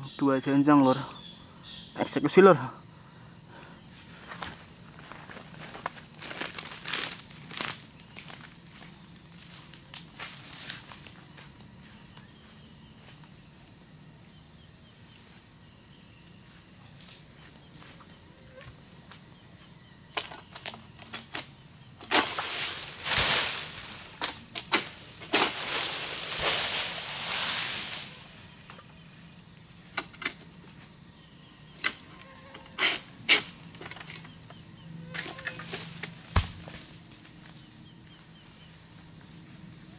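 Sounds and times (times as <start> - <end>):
high insect drone: 0.0 - 39.9
rustling and scraping of fronds: 4.3 - 12.0, 20.2 - 30.8, 35.1 - 37.7.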